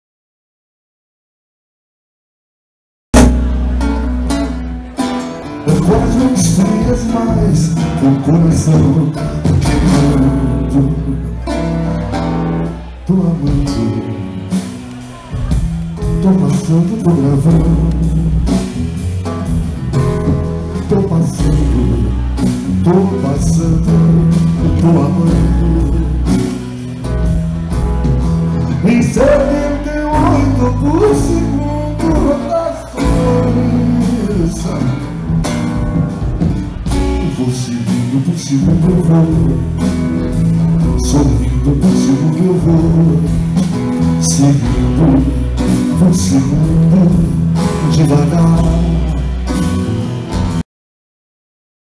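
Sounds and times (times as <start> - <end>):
bass line: 3.1 - 50.6
strummed acoustic guitar: 3.2 - 50.6
man singing: 5.5 - 11.8, 12.6 - 18.8, 19.9 - 26.8, 28.6 - 35.8, 37.0 - 50.6.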